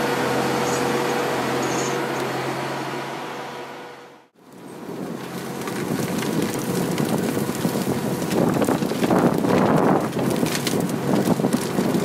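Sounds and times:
skidder engine under load: 0.0 - 12.0
wind buffeting microphone: 5.8 - 12.0.

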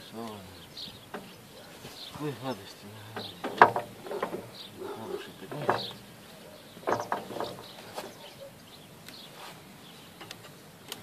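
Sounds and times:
metal rod scraping grass: 6.9 - 8.2.

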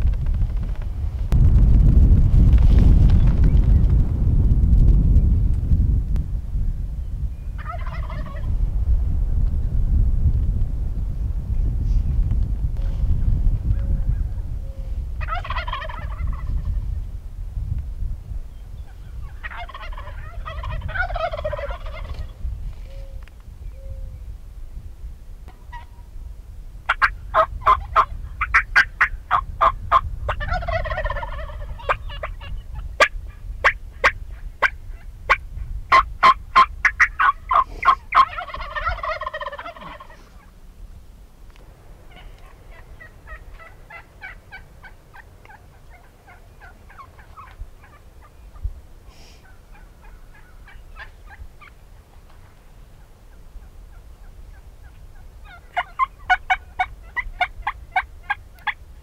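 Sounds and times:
turkey gobbles: 7.6 - 8.5, 13.7 - 16.8, 18.9 - 23.2, 26.9 - 40.6, 42.1 - 51.8, 53.6 - 58.8
turkeys calling: 7.6 - 8.5, 13.8 - 16.9, 18.7 - 23.3, 25.5 - 26.1, 26.9 - 40.6, 41.6 - 58.8.

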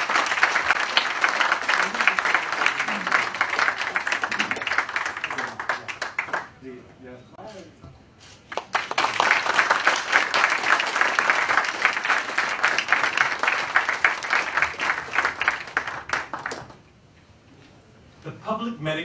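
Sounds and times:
audience applauding: 0.0 - 6.6, 8.5 - 16.8.

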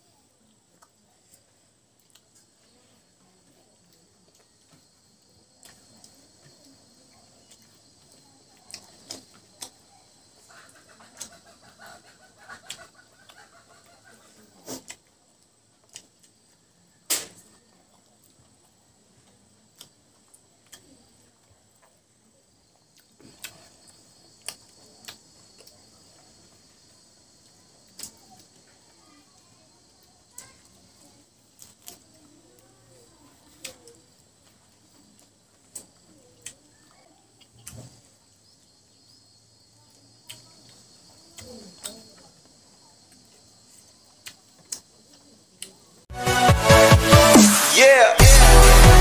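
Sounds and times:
chewing: 0.3 - 16.6, 17.8 - 28.8, 29.8 - 38.0, 40.1 - 45.8
hens clucking: 10.4 - 14.8
lip smacks: 23.0 - 25.8.

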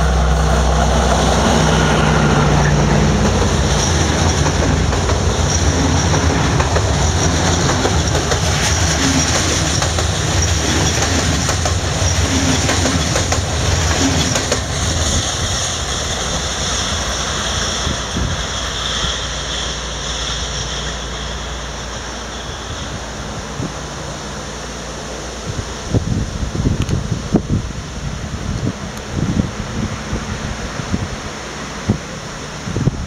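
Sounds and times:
train wheels clacking over rails: 0.0 - 23.0.

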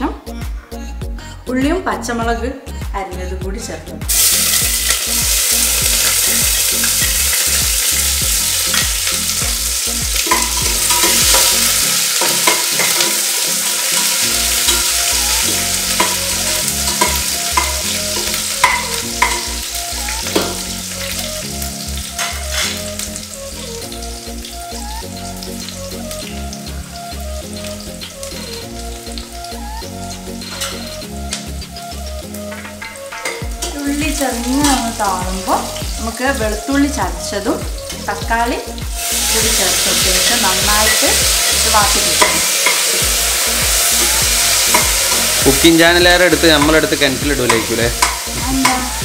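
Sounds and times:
onions sizzling in oil: 4.1 - 49.0
metal spoon clicking on pot: 10.2 - 11.5, 16.9 - 19.5, 47.5 - 48.8.

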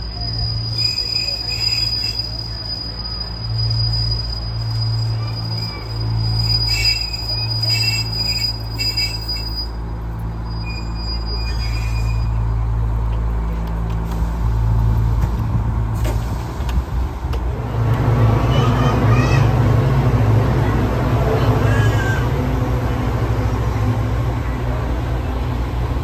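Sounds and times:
diesel engine low hum: 9.7 - 26.0.

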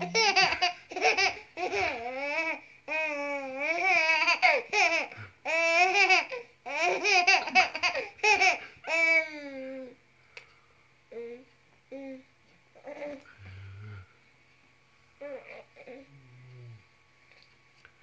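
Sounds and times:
baby laughing and babbling: 0.0 - 10.0, 11.1 - 13.2, 15.2 - 16.1.

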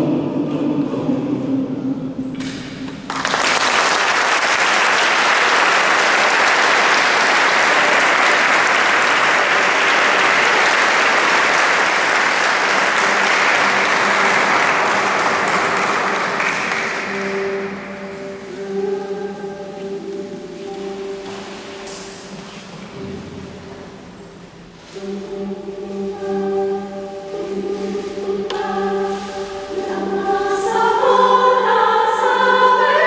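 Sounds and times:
choir singing: 0.0 - 2.3, 5.0 - 23.2, 24.9 - 33.0
audience applause: 3.0 - 17.9.

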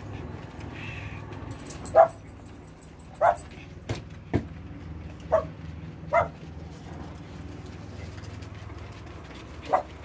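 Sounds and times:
small dog barking: 1.9 - 2.2, 3.2 - 3.4, 5.3 - 5.5, 6.1 - 6.4.

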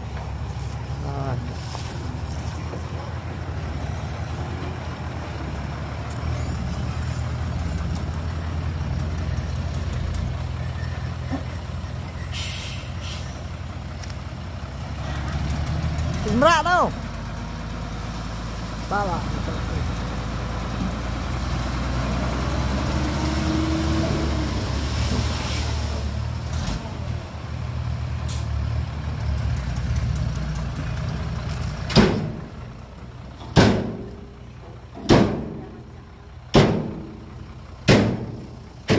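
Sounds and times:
diesel engine running: 0.0 - 38.9
dirt unloading: 20.1 - 27.2.

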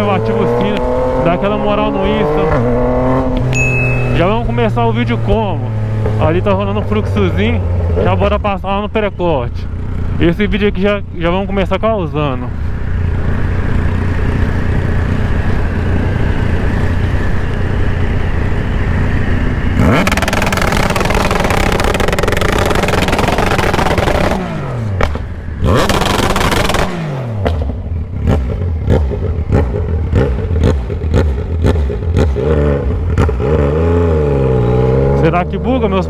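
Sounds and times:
motorcycle engine revving: 0.0 - 36.0
exhaust pops: 19.8 - 32.4.

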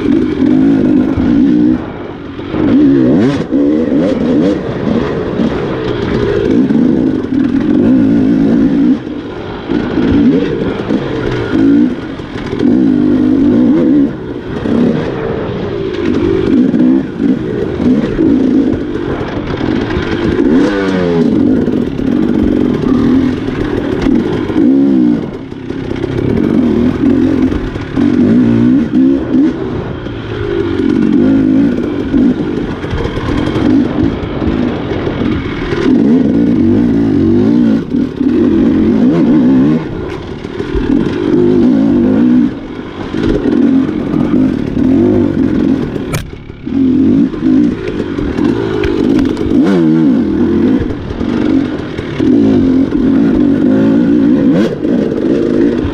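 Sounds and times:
dirt bike engine revving: 0.0 - 55.9
sharp click: 46.1 - 46.4.

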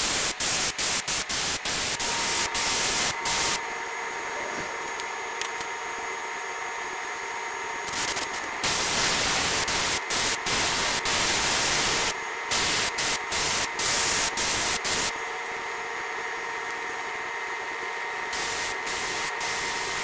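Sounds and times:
airbrush spraying bursts: 0.0 - 3.6, 7.9 - 15.2, 18.3 - 20.0
steady hiss: 7.9 - 15.2.

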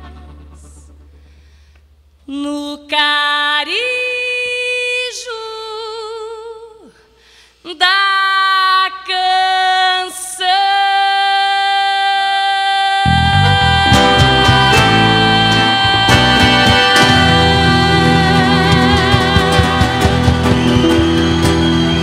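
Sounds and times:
woman singing with vibrato: 0.0 - 1.0, 2.2 - 21.0
accordion-led band: 13.8 - 22.0.

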